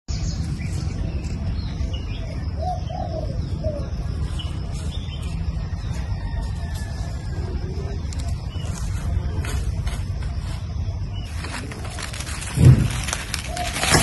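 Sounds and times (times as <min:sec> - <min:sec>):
small birds chirping: 0:00.1 - 0:06.3
steady low rumble: 0:00.1 - 0:13.6
dove cooing: 0:02.6 - 0:04.0, 0:11.9 - 0:14.0.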